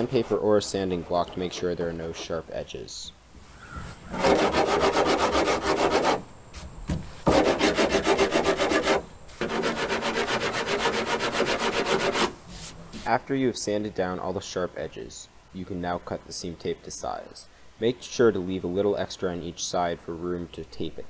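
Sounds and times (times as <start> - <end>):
sanding block rasping: 4.1 - 6.2, 7.2 - 13.1.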